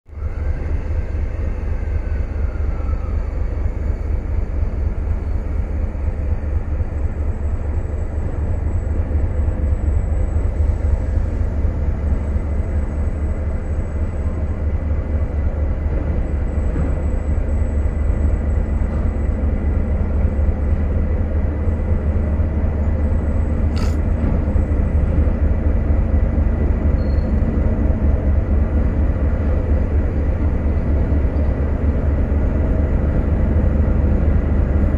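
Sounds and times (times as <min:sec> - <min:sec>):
diesel locomotive engine rumble: 0:00.0 - 0:34.9
sharp click: 0:23.7 - 0:24.0.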